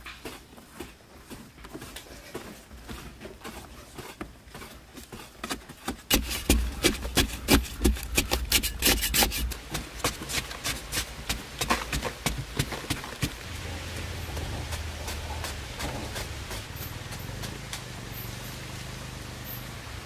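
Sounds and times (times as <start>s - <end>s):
rough scraping strokes: 1.8s - 17.6s.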